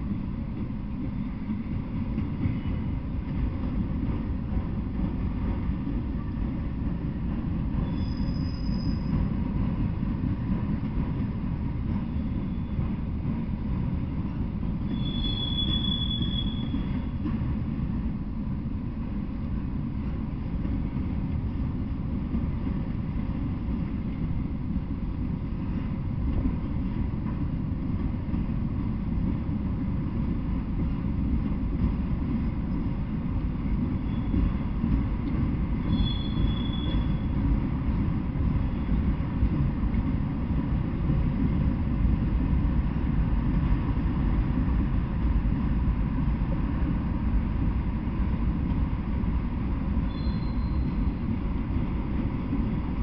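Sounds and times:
freight train rumbling past: 0:00.0 - 0:53.0
train wheel squeals: 0:02.3 - 0:03.0, 0:07.7 - 0:09.5, 0:11.8 - 0:13.2, 0:14.3 - 0:17.4, 0:33.6 - 0:35.1, 0:35.7 - 0:37.6, 0:38.5 - 0:39.2, 0:50.0 - 0:51.4.

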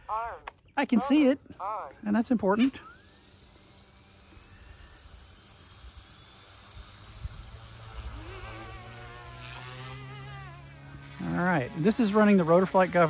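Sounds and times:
low hum: 0:00.0 - 0:13.0
rotors wavering whine: 0:00.0 - 0:13.0
rc helicopter motor whine: 0:00.9 - 0:13.0.

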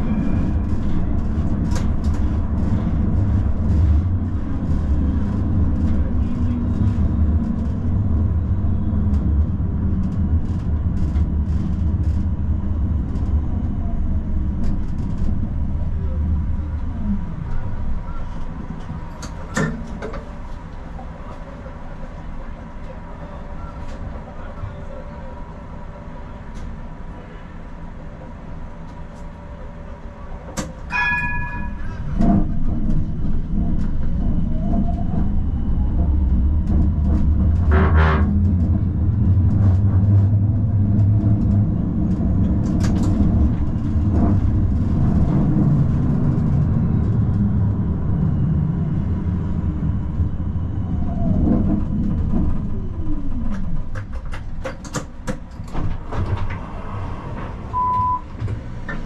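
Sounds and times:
tram motor whine: 0:00.0 - 0:59.0
tram wheels rumbling on rails: 0:00.0 - 0:59.0
short beep: 0:57.7 - 0:58.3.

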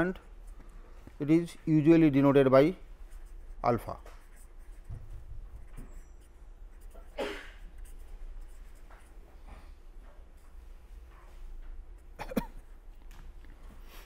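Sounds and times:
pen scratching on paper: 0:03.1 - 0:03.6, 0:04.2 - 0:09.2.

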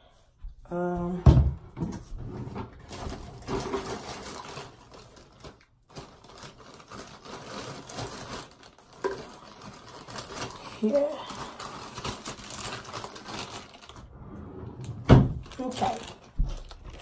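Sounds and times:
plastic bottle rustling in a bag: 0:02.8 - 0:14.1, 0:15.3 - 0:17.0.

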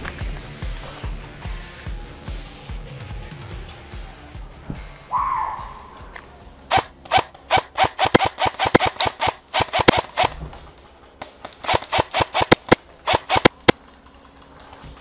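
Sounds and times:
airsoft rifle single shots: 0:06.7 - 0:10.4, 0:11.4 - 0:13.7.

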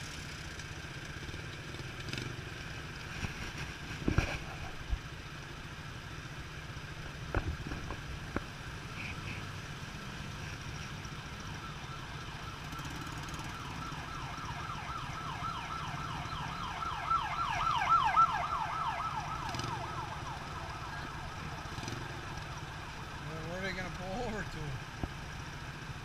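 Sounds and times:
idling traffic rumble: 0:00.0 - 0:26.0
siren yelping: 0:11.2 - 0:22.7.

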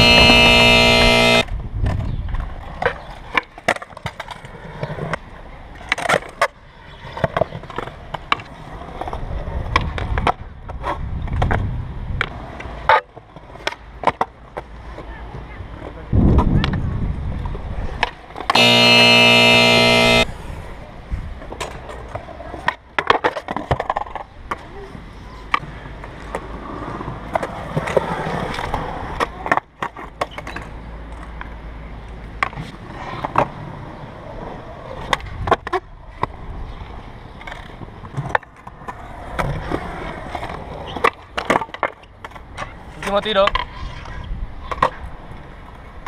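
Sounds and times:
loud horn-like tone: 0:00.0 - 0:01.5, 0:18.5 - 0:20.3
skateboard wheels rolling on concrete: 0:00.0 - 0:19.3, 0:20.2 - 0:46.0.

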